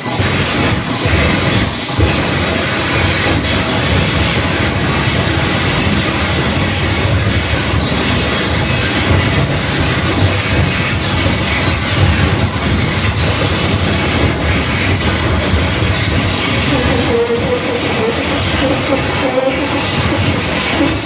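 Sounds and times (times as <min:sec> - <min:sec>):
dense electronic noise music: 0:00.0 - 0:21.0.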